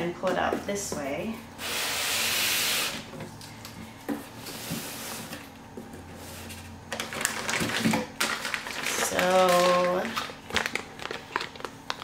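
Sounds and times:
packing material rustling: 0:06.9 - 0:12.0.

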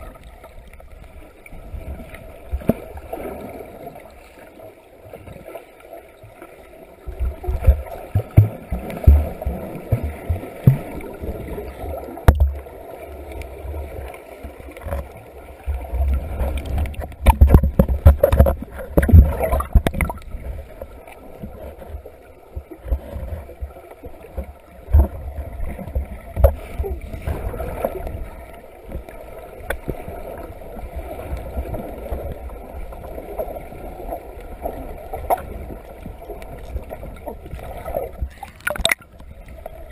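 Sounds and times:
water sloshing and gurgling: 0:00.0 - 0:39.9
low thumps and knocks: 0:07.5 - 0:11.1, 0:17.0 - 0:20.2.

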